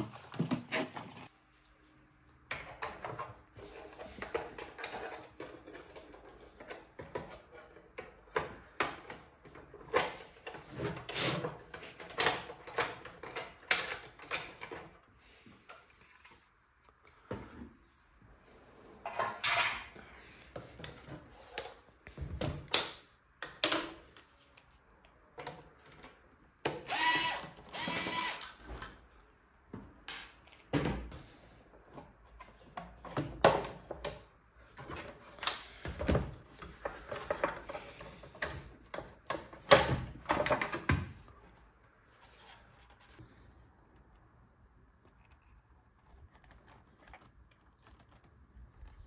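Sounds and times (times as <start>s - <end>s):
electric screwdriver whirring: 26.9s - 28.6s.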